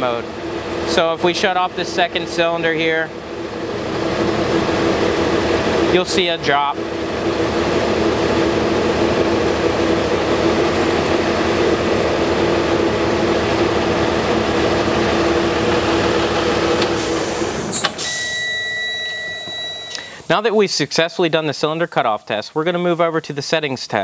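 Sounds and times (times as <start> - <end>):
diesel engine idling: 0.0 - 18.7.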